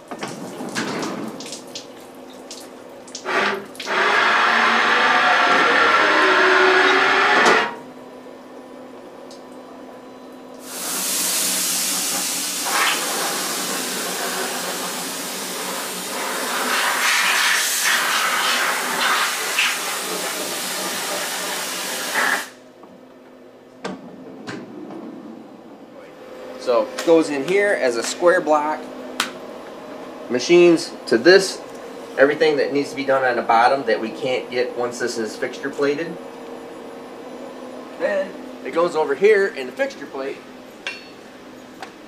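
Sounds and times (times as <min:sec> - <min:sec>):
coolant splashing: 0:00.0 - 0:04.9
air blow gun hissing: 0:10.6 - 0:20.1.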